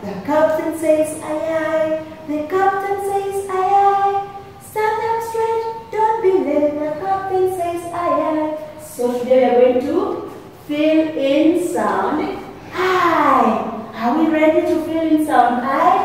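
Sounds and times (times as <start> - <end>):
woman singing unaccompanied: 0.2 - 10.1.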